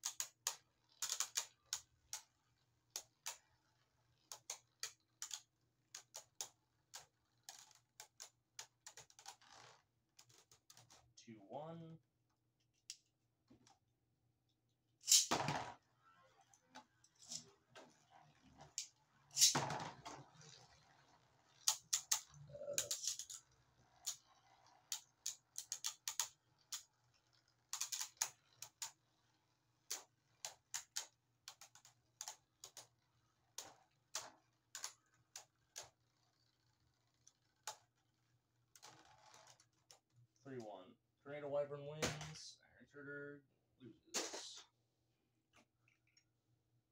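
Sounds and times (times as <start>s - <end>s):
spinning tops crashing: 15.0s - 15.8s, 17.2s - 23.4s.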